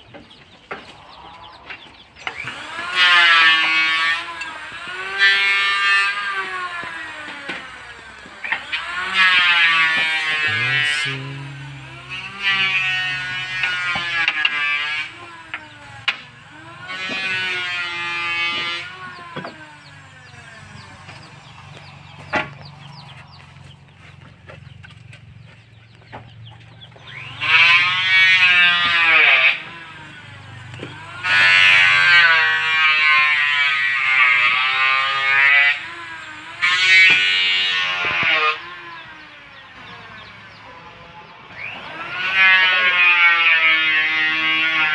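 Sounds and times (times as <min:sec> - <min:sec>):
motor humming: 0:00.0 - 0:44.9
table saw cutting wood: 0:00.0 - 0:44.9
sharp knocks: 0:20.7 - 0:23.2.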